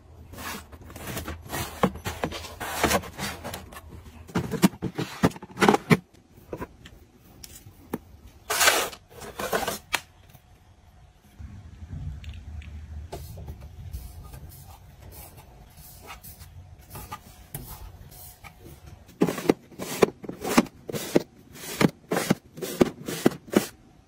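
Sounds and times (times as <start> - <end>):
plastic items handled: 0.2 - 10.4, 14.0 - 23.8.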